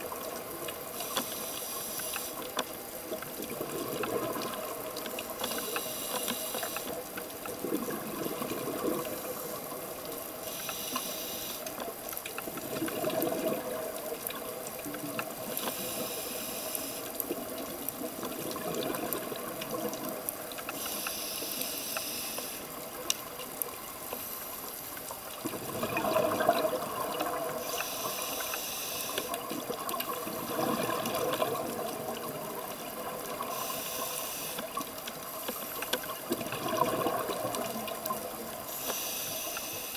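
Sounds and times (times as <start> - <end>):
regulator inhalation hiss: 1.0 - 2.5, 5.4 - 7.0, 10.4 - 11.7, 15.5 - 17.1, 20.7 - 22.8, 27.6 - 29.3, 33.4 - 35.9, 38.7 - 39.9.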